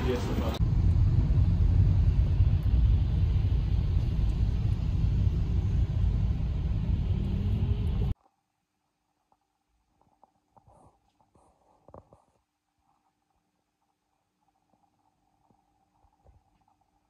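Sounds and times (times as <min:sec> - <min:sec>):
road and engine rumble: 0:00.0 - 0:08.2.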